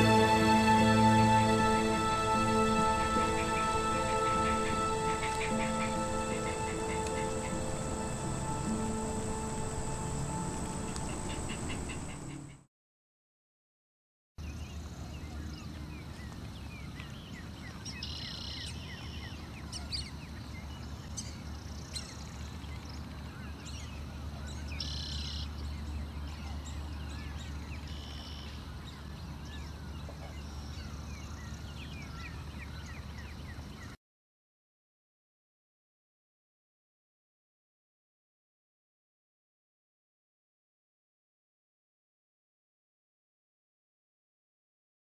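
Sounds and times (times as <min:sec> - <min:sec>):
steady low rumble: 0:00.0 - 0:12.5
harsh bird calls: 0:00.0 - 0:12.6
birds chirping and calling: 0:01.7 - 0:12.6.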